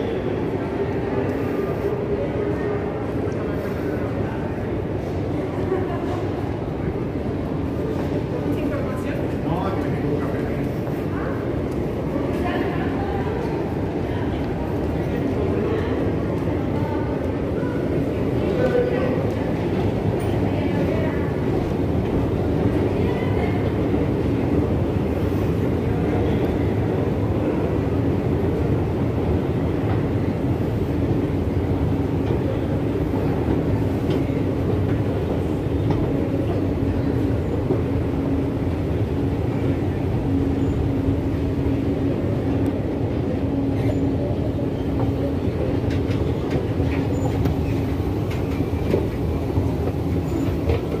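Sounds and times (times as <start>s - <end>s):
escalator rumble and hum: 0.0s - 51.0s
faint escalator clicks: 31.0s - 39.0s, 44.5s - 51.0s.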